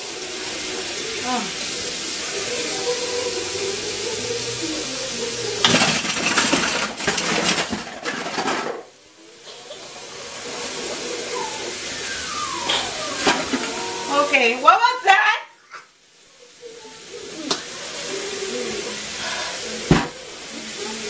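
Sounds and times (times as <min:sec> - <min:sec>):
tap water running into sink: 0:00.0 - 0:07.9, 0:17.4 - 0:21.0
dishes clinking: 0:05.6 - 0:10.0.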